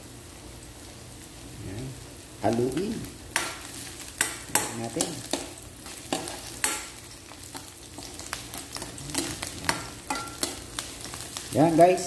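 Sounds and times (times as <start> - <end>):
oil sizzling: 0.0 - 12.0.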